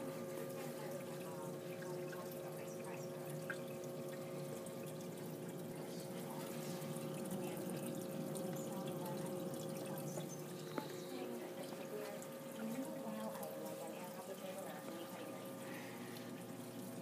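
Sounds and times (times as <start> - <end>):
aquarium water trickling and splashing: 0.0 - 17.0.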